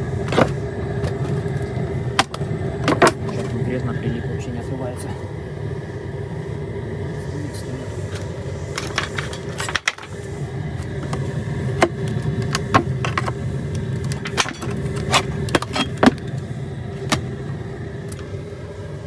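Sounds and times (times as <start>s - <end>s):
low rumble: 0.0s - 19.0s.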